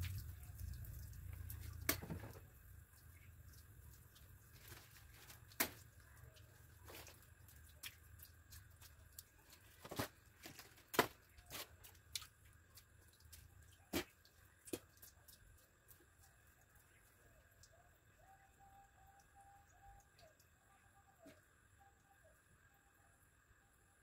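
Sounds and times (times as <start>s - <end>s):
water dripping onto bamboo slats: 0.0s - 17.8s.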